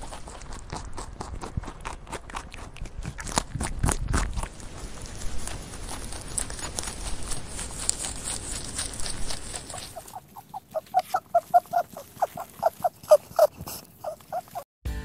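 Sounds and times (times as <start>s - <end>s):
rabbit chewing clicks: 0.0s - 14.6s
rabbit squeaky grunts: 7.4s - 14.7s.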